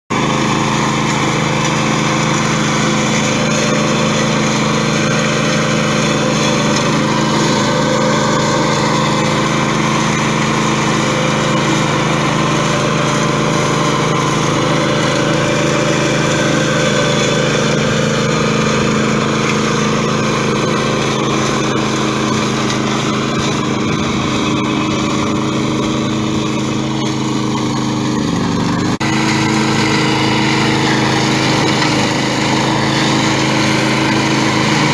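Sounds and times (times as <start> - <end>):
shredder cutting through weeds: 0.1 - 34.9
two-wheel tractor running: 0.1 - 34.9.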